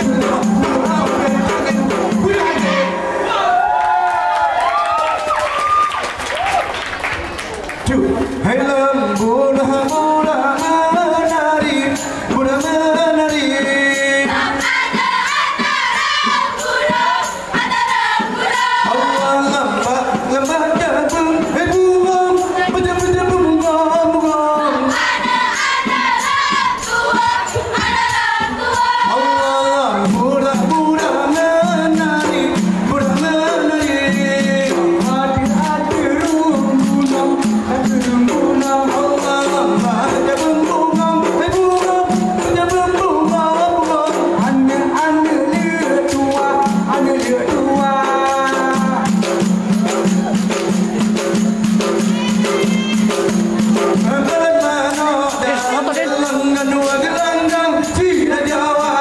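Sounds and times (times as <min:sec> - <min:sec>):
chant-like singing: 0:00.0 - 0:03.6, 0:08.5 - 0:22.7, 0:23.6 - 0:50.4
fast frame drum and hand percussion: 0:00.0 - 0:59.0.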